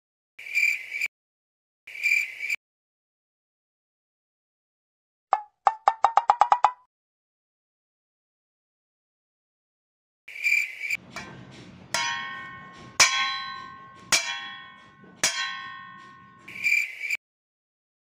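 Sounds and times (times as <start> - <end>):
metal struck ringing: 11.0 - 16.7.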